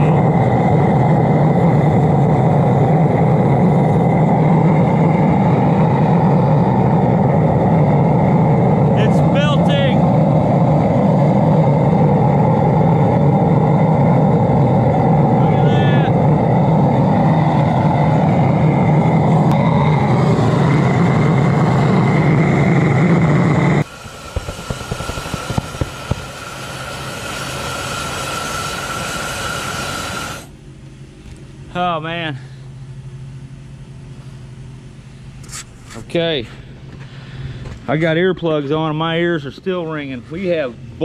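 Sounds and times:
burner roaring with low hum: 0.0 - 41.0
high whine: 0.0 - 41.0
crackles: 19.1 - 30.5.

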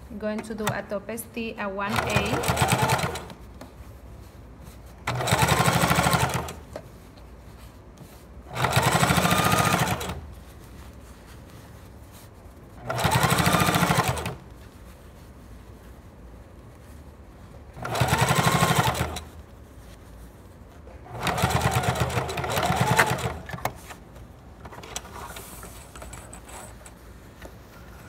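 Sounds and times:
sewing machine stitching: 1.9 - 3.4, 5.0 - 6.6, 8.5 - 10.2, 12.8 - 14.4, 17.8 - 19.3, 21.1 - 24.0.

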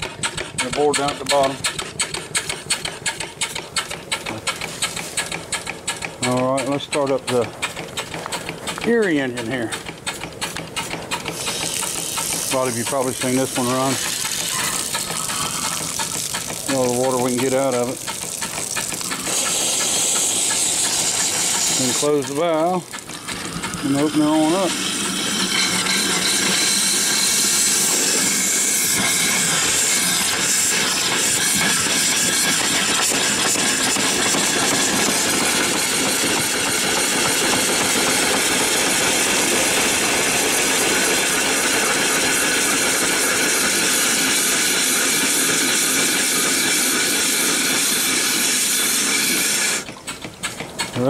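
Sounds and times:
steam engine running: 0.0 - 51.0
steam hissing: 0.0 - 51.0.

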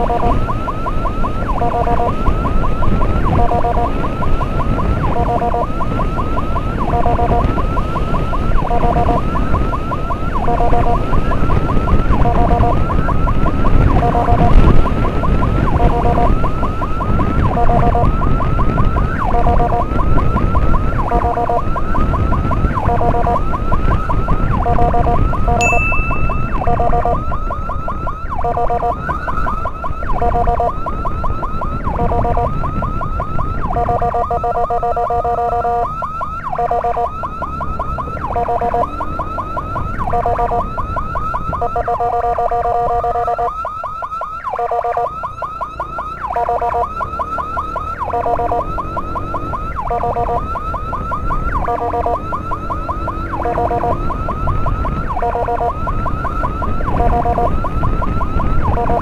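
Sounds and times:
electronic emergency siren: 0.0 - 59.0
road noise: 0.0 - 59.0.

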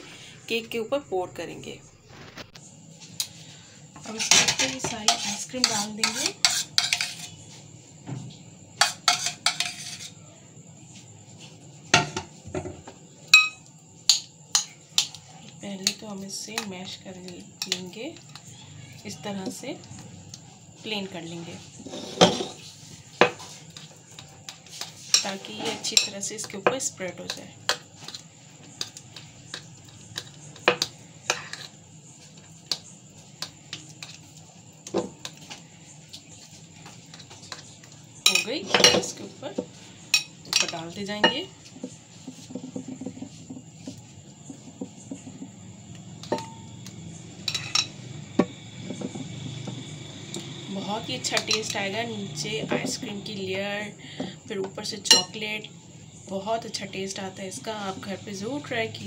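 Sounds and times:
metal spoon scraping glass bowl: 4.1 - 7.4, 8.8 - 10.2, 21.8 - 22.7
metal spoon clinking on dish: 13.4 - 15.1, 38.3 - 39.1, 47.4 - 48.0, 55.1 - 55.4.

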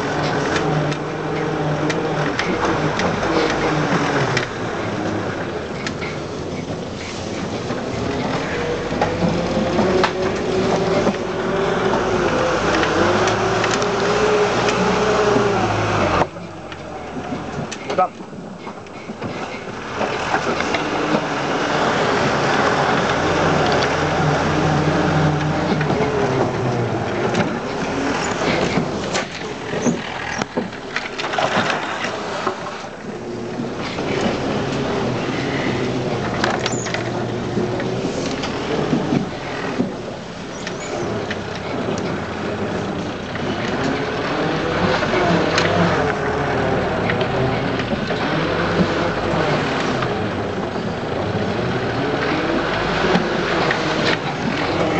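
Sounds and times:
engine pulling hard under load: 0.0 - 54.9
vehicle knocks and rattles: 33.4 - 52.0.

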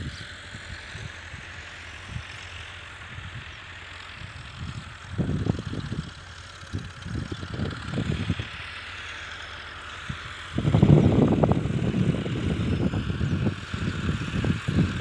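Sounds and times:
tractor engine under load: 0.0 - 15.0
wind buffeting microphone: 4.2 - 8.7, 10.1 - 15.0.

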